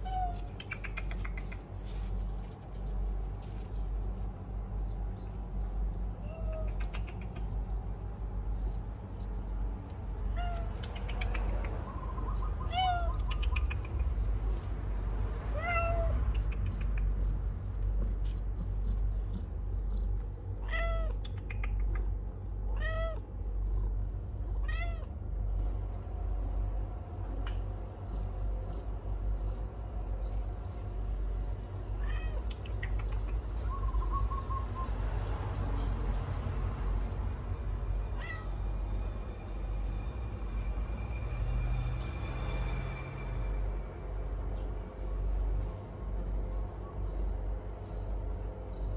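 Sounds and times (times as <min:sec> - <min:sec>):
cat meowing: 0:00.0 - 0:00.6, 0:10.3 - 0:10.9, 0:12.7 - 0:13.3, 0:15.5 - 0:16.3, 0:20.6 - 0:21.3, 0:22.7 - 0:23.3, 0:24.6 - 0:25.1, 0:32.0 - 0:32.5, 0:38.1 - 0:38.5.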